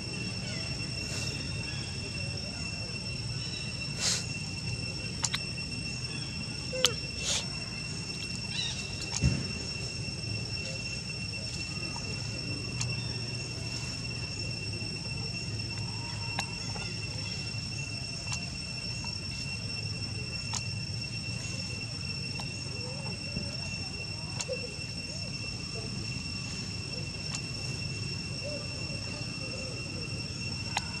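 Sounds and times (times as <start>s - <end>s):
insects trilling: 0.0s - 31.0s
sharp clicks: 5.2s - 5.4s.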